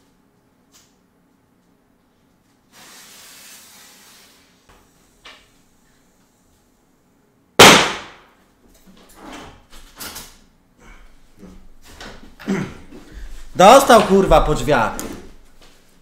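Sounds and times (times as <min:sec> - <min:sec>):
firecracker bang: 0:07.6 - 0:08.2.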